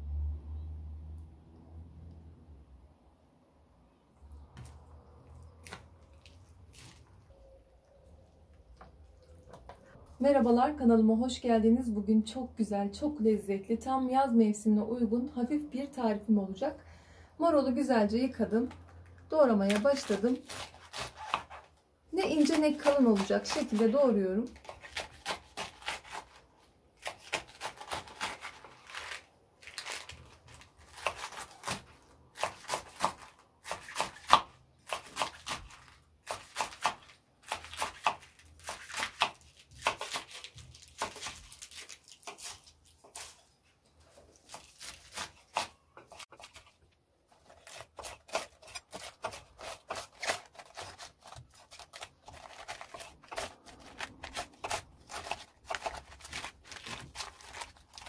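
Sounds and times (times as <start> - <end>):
knife slicing crisp lettuce: 19.6 - 58.0.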